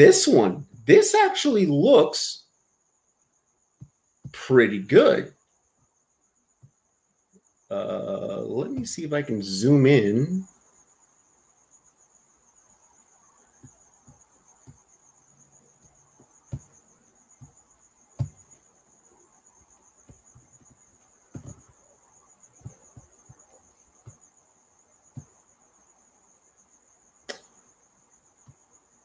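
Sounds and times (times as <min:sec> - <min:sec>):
faint high-pitched tone: 0:07.7 - 0:10.4.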